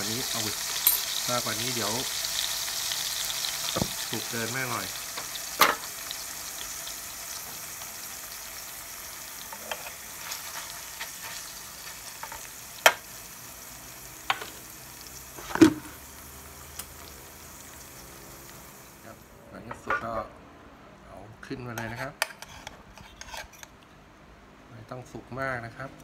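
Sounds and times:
steak sizzling in a pan: 0:00.0 - 0:19.0.

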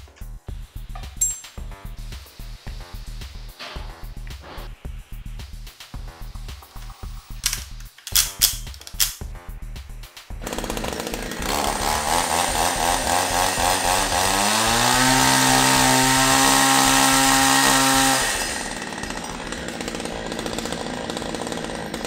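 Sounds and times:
chainsaw revving: 0:10.4 - 0:22.0.

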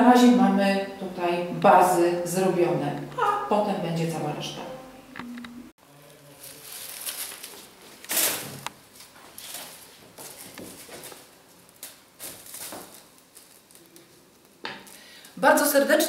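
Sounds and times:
plastic crinkling: 0:06.0 - 0:15.1
dry bark rustling and knocking: 0:09.5 - 0:14.9.

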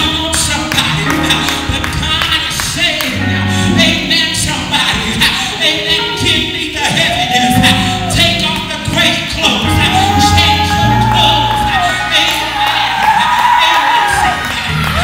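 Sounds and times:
instrumental accompaniment: 0:00.0 - 0:13.3.

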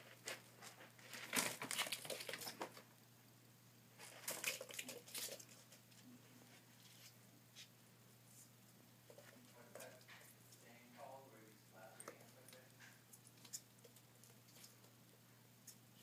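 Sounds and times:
kittens scratching in cat litter: 0:00.0 - 0:02.9, 0:04.0 - 0:07.7.

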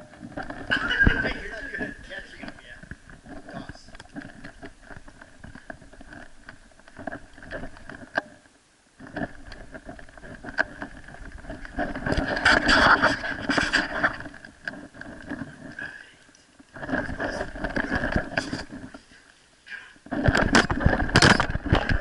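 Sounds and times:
fur rubbing on microphone: 0:11.2 - 0:14.4.

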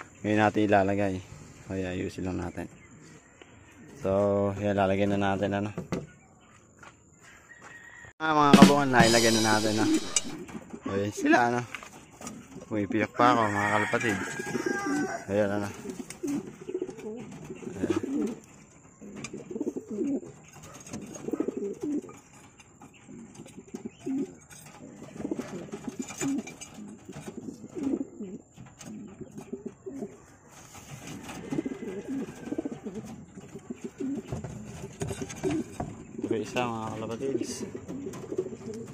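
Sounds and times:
pigeons cooing: 0:08.5 - 0:38.9.

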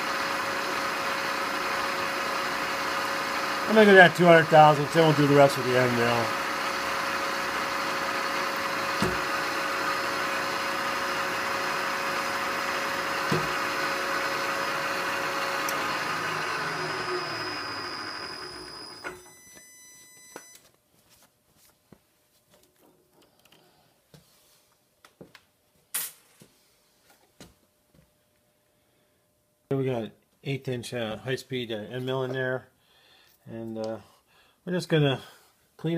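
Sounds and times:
milling machine spindle drilling: 0:00.0 - 0:19.2
spindle winding down: 0:00.0 - 0:19.4.

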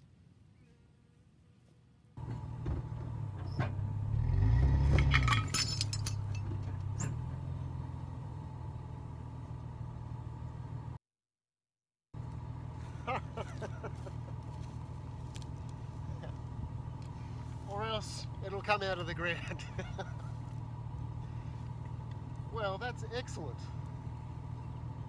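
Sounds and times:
engine idling and revving: 0:02.2 - 0:11.0, 0:12.2 - 0:25.0
chain clinking on metal: 0:04.9 - 0:06.9.

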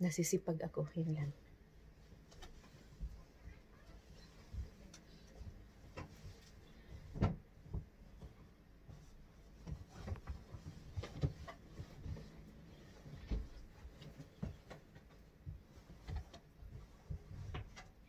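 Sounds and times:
bedding rustling: 0:01.2 - 0:18.0
soft thumps and knocks on bed: 0:05.5 - 0:12.5.

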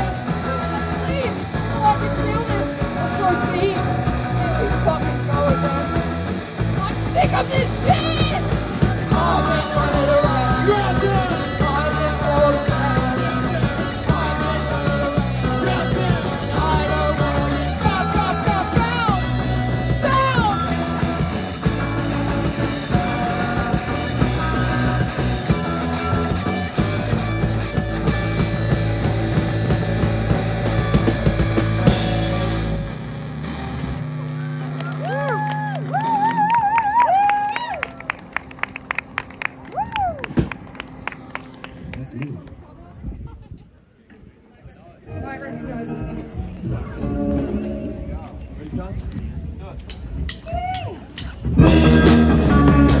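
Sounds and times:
drum kit: 0:00.0 - 0:33.8, 0:49.8 - 0:53.0
distorted electric guitars: 0:00.0 - 0:36.6, 0:45.1 - 0:50.3, 0:51.3 - 0:53.0
bass guitar: 0:00.0 - 0:43.5, 0:45.0 - 0:53.0
person singing into microphone: 0:09.0 - 0:19.3.

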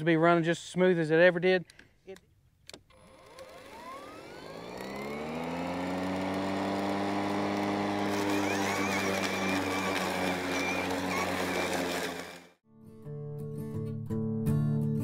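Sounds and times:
lawn mower motor whine: 0:02.9 - 0:12.6
mower cutting grass: 0:02.9 - 0:12.6.

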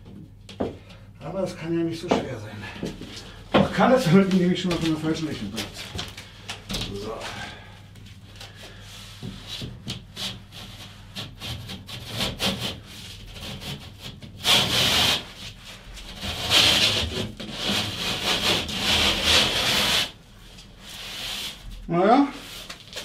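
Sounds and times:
plane scraping plasterboard edge: 0:09.3 - 0:20.2.

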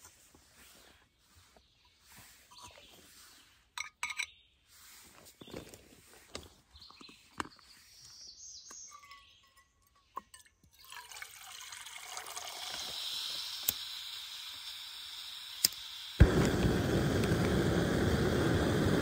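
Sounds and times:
water pouring into metal pot: 0:10.7 - 0:13.9.

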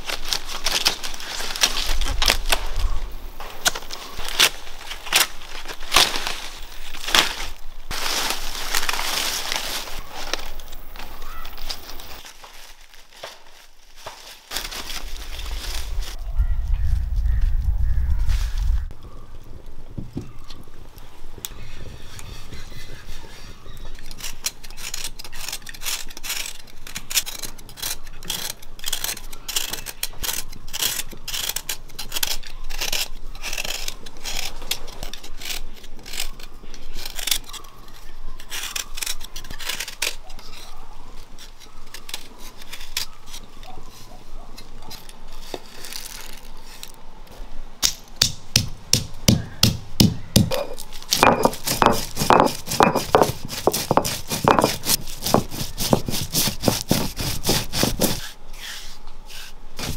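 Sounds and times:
utensils clicking and scraping: 0:22.1 - 0:43.8, 0:50.4 - 0:58.4.

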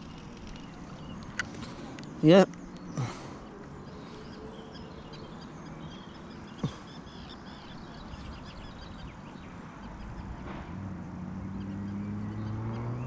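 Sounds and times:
birds chirping: 0:00.0 - 0:13.0
outdoor background noise: 0:00.0 - 0:13.0.

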